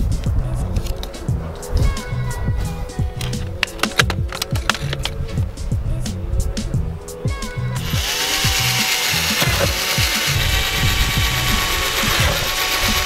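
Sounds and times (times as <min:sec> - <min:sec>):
music with steady beat: 0:00.0 - 0:13.0
power drill drilling: 0:07.8 - 0:13.0.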